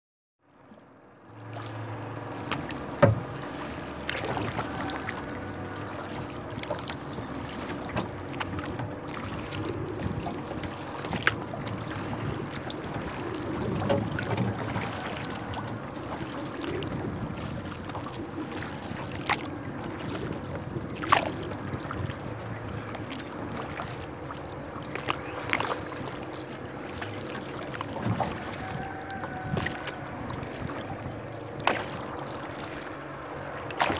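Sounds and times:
water lapping against kayak hull: 0.5s - 33.9s.

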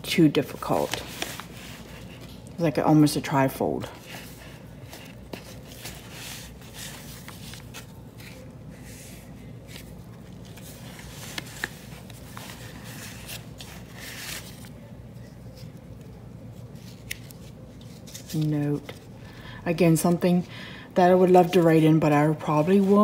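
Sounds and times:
paper rustling and sliding: 0.7s - 2.4s, 4.0s - 14.9s.

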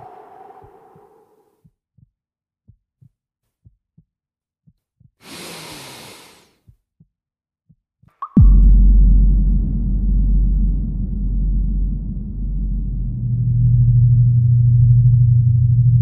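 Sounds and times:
low rumbling drone: 0.0s - 1.2s, 8.4s - 16.0s
heartbeat thumps: 8.4s - 14.2s.

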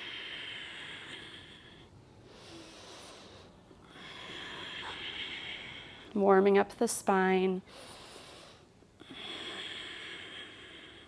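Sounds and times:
person breathing: 0.0s - 6.2s, 7.6s - 11.0s.

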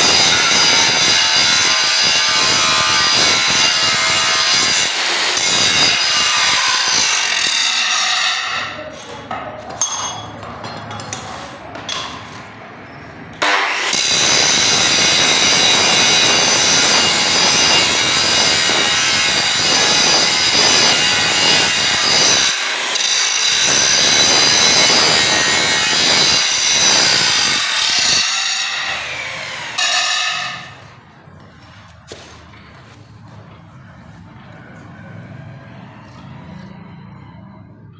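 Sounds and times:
angle grinder grinding steel: 0.0s - 8.8s, 13.4s - 31.0s.

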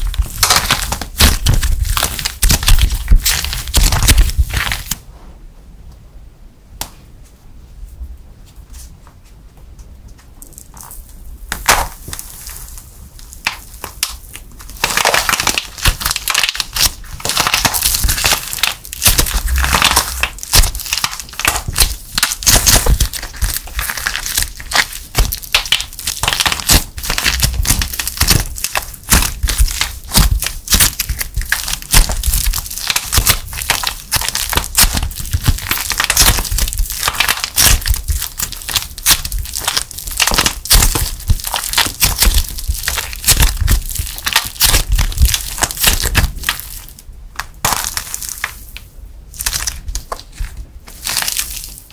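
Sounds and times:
clay crackling and crunching: 0.0s - 5.0s, 10.1s - 51.9s
plaster shell cracking: 0.0s - 5.0s, 13.4s - 48.6s.

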